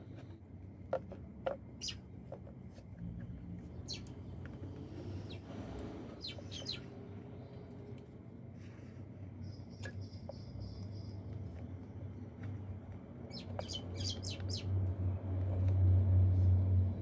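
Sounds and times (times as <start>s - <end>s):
bird chirps: 1.8s - 2.0s, 3.8s - 4.1s, 6.2s - 6.9s, 9.4s - 11.3s, 13.3s - 14.7s.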